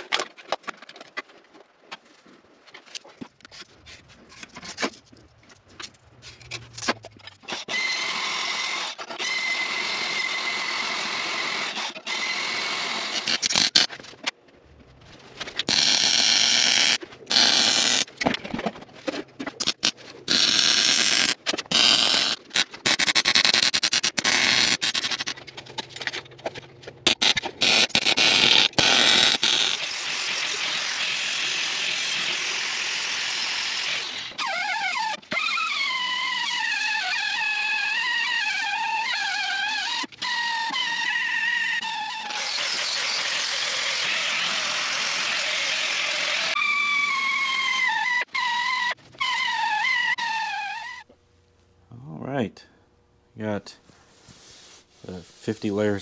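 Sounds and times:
welder crackling: 0:11.7 - 0:14.0, 0:15.5 - 0:18.3, 0:27.0 - 0:34.4
angle grinder on steel: 0:27.1 - 0:35.2, 0:42.1 - 0:46.6.

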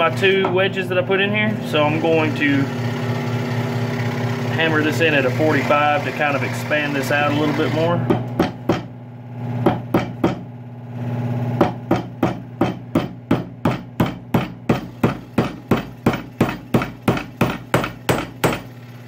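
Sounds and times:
hammer striking metal wedge: 0:08.0 - 0:08.9, 0:09.6 - 0:10.5, 0:11.6 - 0:18.7.

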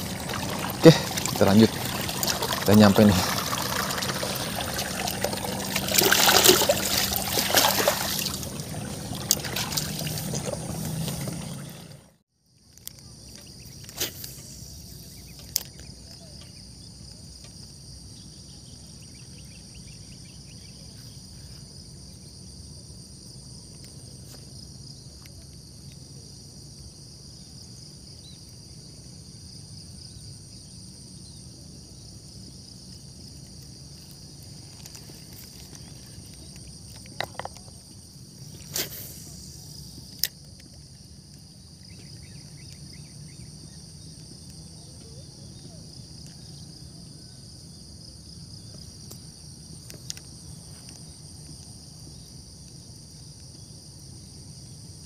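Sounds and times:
water trickling through a ditch: 0:00.0 - 0:12.1, 0:33.4 - 0:41.4
insects chirring: 0:00.0 - 0:55.0.

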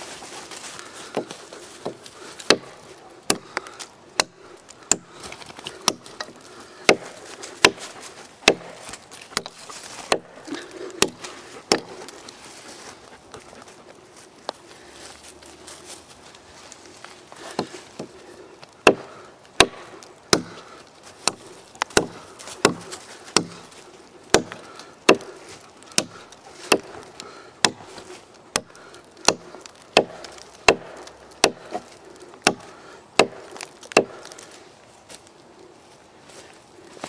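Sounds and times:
hatchet chopping log: 0:01.1 - 0:12.2, 0:17.4 - 0:34.4.

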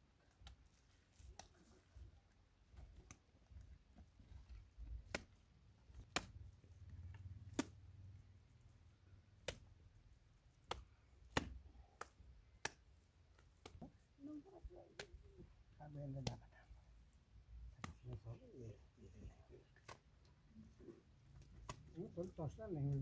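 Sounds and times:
mud plaster slapped on wall: 0:10.6 - 0:12.8.

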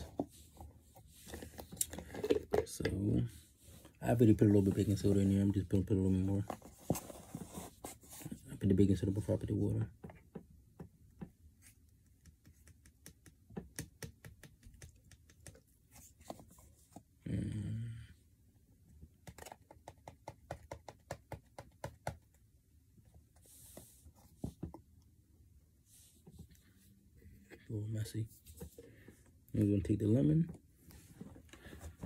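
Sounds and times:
plastic bottle handled: 0:00.0 - 0:05.2.

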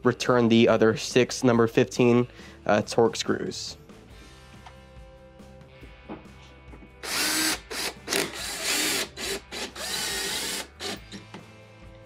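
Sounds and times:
cordless drill driving screw: 0:07.0 - 0:11.2.

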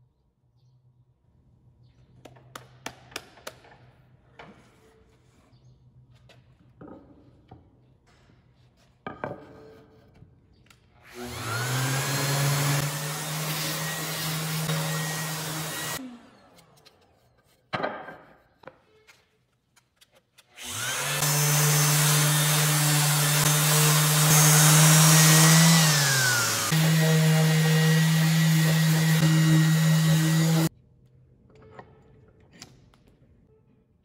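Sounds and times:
orbital sander whining: 0:11.1 - 0:16.0, 0:20.6 - 0:30.7.

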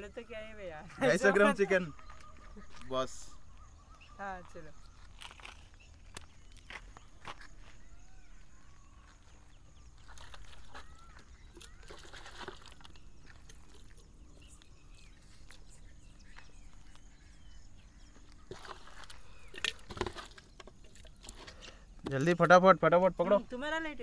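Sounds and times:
birds calling: 0:00.0 - 0:24.0.

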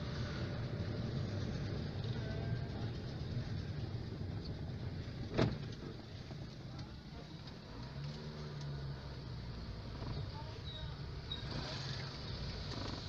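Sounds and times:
car engine: 0:00.0 - 0:13.0
road rumble: 0:00.0 - 0:13.0.

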